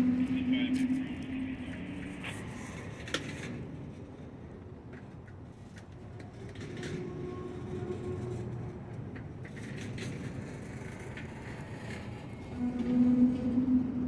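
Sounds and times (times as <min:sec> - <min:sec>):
low engine rumble: 0:00.0 - 0:14.0
faint clicks and squeaks: 0:04.9 - 0:14.0.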